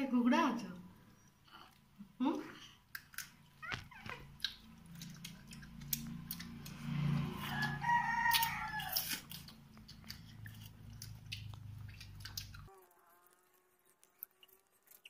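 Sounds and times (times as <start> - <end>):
clicks of people eating: 2.8 - 7.2, 8.2 - 15.0
rooster crowing: 7.2 - 9.3.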